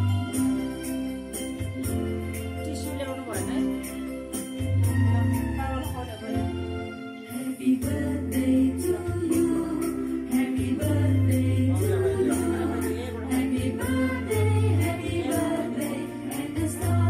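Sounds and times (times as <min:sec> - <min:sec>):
song with sung vocals: 0:07.2 - 0:17.0.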